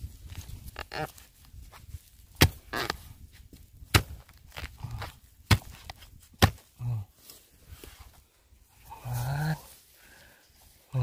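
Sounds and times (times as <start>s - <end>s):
soil scraping: 0.0s - 11.0s
spade striking hard ground: 2.3s - 3.0s, 3.8s - 6.8s.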